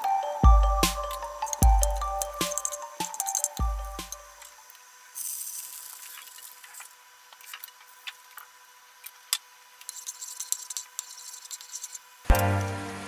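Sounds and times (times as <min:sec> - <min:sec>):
loud background music: 0:00.4 - 0:04.2, 0:12.3 - 0:13.0.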